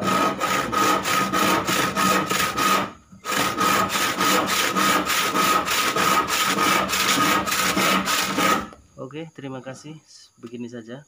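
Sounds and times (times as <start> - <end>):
handsaw cutting wood: 0.0 - 8.8.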